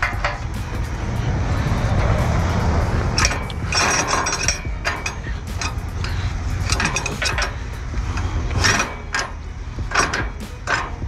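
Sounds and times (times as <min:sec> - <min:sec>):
low rumble: 0:00.0 - 0:11.0
ratchet strap metal clicks: 0:03.2 - 0:11.0.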